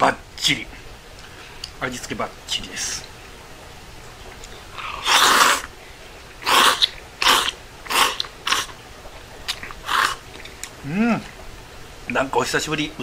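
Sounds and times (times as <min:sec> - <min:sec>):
noodles being slurped: 0:04.9 - 0:05.7, 0:06.4 - 0:08.8.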